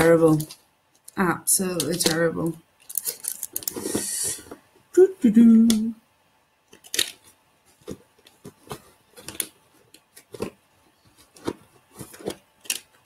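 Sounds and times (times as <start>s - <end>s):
hand rummaging through plastic box: 2.8s - 4.6s, 6.7s - 13.0s.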